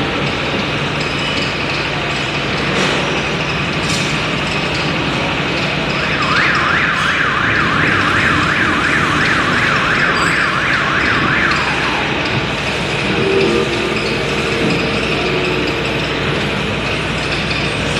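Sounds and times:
steady mechanical hum: 0.0s - 17.9s
warbling warning siren: 5.8s - 17.8s.

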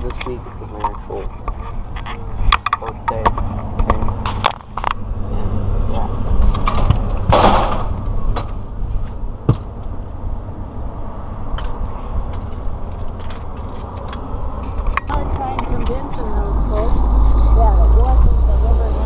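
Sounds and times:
camera scraping rustle: 0.0s - 5.0s
wind rumble on microphone: 0.0s - 19.0s.

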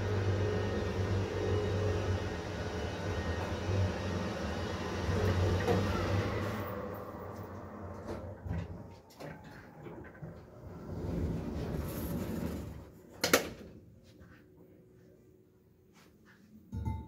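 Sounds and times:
lift car humming while travelling: 0.0s - 12.9s
sliding lift doors opening: 2.2s - 13.7s.

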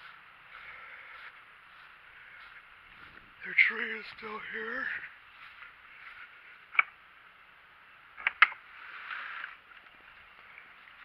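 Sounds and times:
soft rustle: 0.0s - 6.7s, 8.6s - 11.0s.

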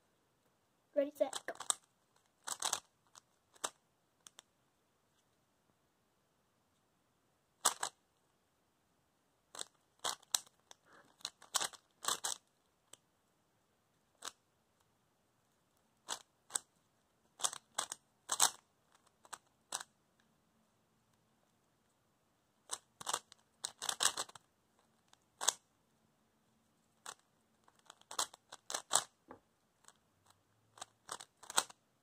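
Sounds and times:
puzzle cube layers clicking: 1.2s - 4.5s, 7.6s - 8.0s, 9.5s - 13.0s, 14.1s - 14.9s, 16.0s - 20.3s, 22.6s - 25.7s, 26.9s - 29.2s, 29.8s - 31.8s.

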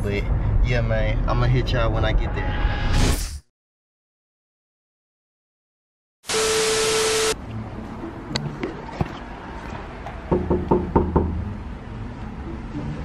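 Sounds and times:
loud hiss with steady tone: 6.3s - 7.4s
knocks on a door: 10.3s - 11.4s.

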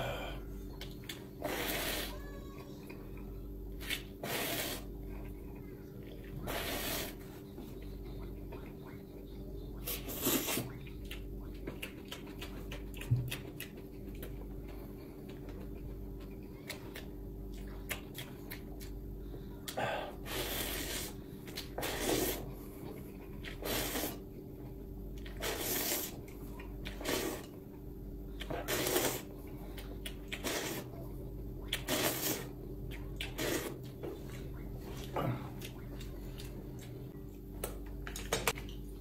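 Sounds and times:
faint steady hum: 0.0s - 39.0s
noodles being slurped: 1.4s - 2.3s, 3.8s - 5.4s, 6.3s - 7.4s, 9.8s - 10.8s, 20.2s - 24.2s, 25.2s - 27.6s, 28.4s - 30.9s, 31.7s - 35.7s.

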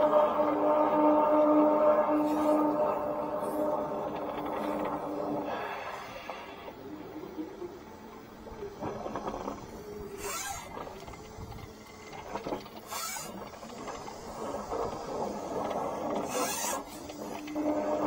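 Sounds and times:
sewer jetter running: 0.0s - 18.0s
short hissing bursts: 10.1s - 10.8s.

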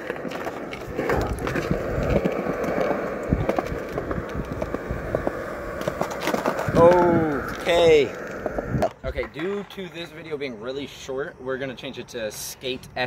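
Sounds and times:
skateboard clicks and knocks: 0.0s - 10.2s
skateboard wheels rolling on concrete: 0.0s - 13.0s.

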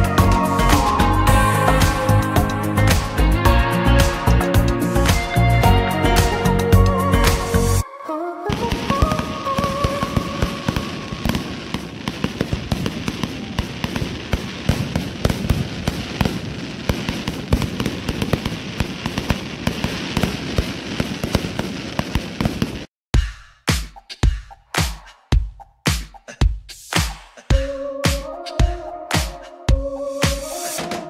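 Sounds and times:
fireworks bangs and crackles: 0.0s - 5.5s, 8.5s - 22.9s.

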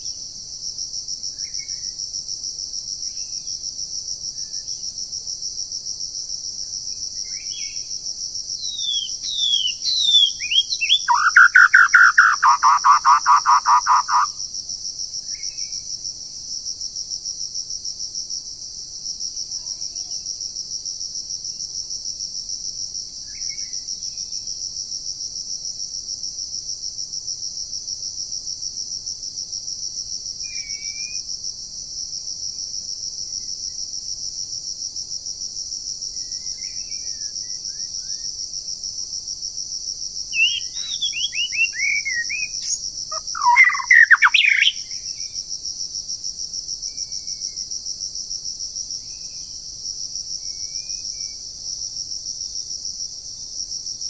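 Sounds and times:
pulsing insect chorus: 0.0s - 54.0s
short bird chirps: 8.8s - 14.3s, 40.4s - 45.0s
bird warbling: 9.5s - 14.3s, 40.4s - 44.8s.

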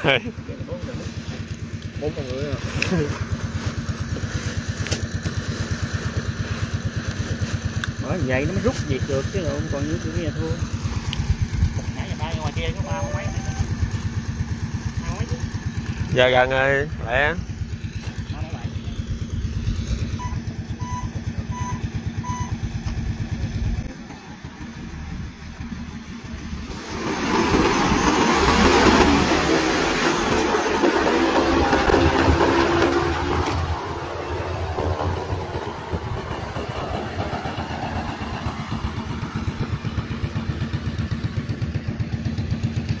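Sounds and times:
small engine idling: 0.0s - 43.0s
drone rotors droning: 7.8s - 42.2s
short electronic beeps: 20.2s - 22.6s
low regular throb: 33.9s - 43.0s.

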